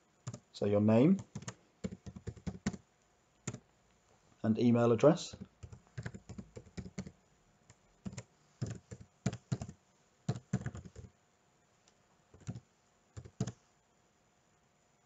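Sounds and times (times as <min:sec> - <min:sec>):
computer keyboard typing: 0:00.2 - 0:00.4, 0:01.1 - 0:02.8, 0:03.4 - 0:03.6, 0:05.3 - 0:11.1, 0:12.4 - 0:12.6, 0:13.2 - 0:13.6.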